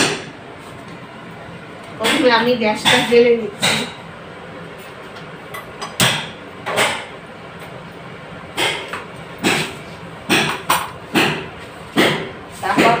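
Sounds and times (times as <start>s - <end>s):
sharp knocks and clacks: 8.6s - 13.0s.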